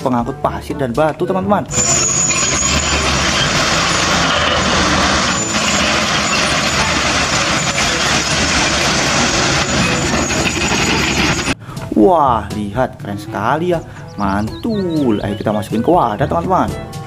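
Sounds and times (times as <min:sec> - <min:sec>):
earth and rocks pouring out: 0:01.7 - 0:11.6
diesel truck engine running: 0:01.7 - 0:11.9, 0:13.4 - 0:16.2.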